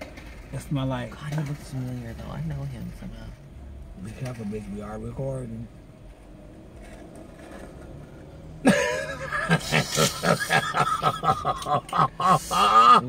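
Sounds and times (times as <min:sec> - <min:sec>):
people laughing hard: 0:08.6 - 0:13.0.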